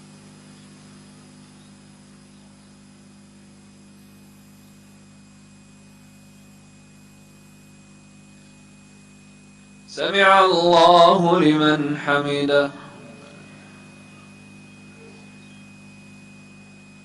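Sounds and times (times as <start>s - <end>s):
electrical mains hum: 0.0s - 17.0s
thin high tone: 9.9s - 16.9s.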